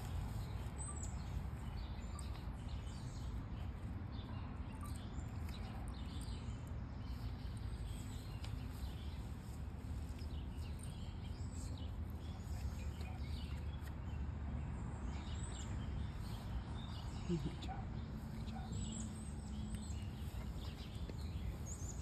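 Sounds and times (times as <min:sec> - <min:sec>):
faint high bird chirps: 0:00.0 - 0:03.4, 0:04.2 - 0:09.2.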